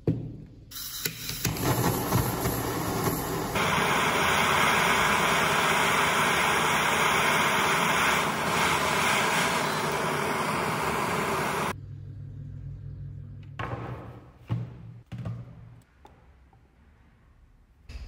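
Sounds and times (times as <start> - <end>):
blowtorch flame hissing: 0.8 - 11.8.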